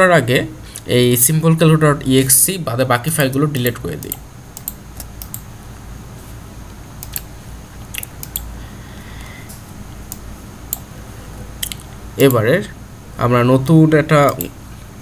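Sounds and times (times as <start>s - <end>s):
low steady background hum: 0.0s - 15.0s
mouse and keyboard clicks: 11.6s - 12.4s.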